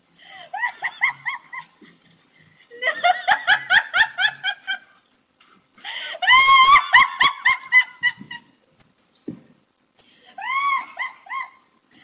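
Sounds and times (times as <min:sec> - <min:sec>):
woman laughing hard: 0:00.4 - 0:01.8, 0:02.7 - 0:05.0, 0:06.0 - 0:08.6, 0:10.4 - 0:11.7
woman squealing: 0:10.4 - 0:11.7.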